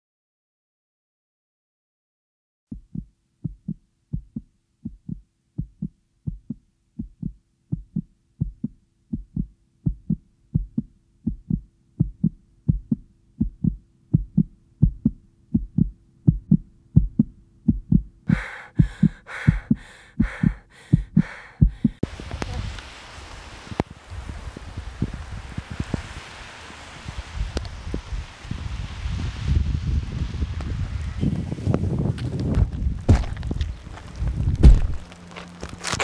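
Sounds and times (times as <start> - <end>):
heartbeat thumps: 2.7 - 22.6, 25.0 - 25.2, 34.3 - 35.1.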